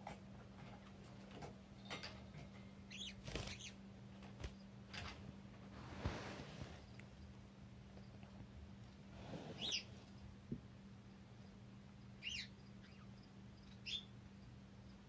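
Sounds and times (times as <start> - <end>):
prairie dog squeaky chirps: 12.2 - 13.1.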